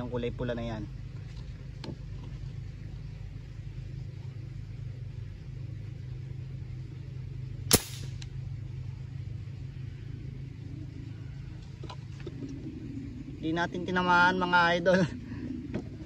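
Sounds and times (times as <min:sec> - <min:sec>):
steady low hum: 0:00.0 - 0:16.0
sharp gunshot: 0:07.7 - 0:08.2.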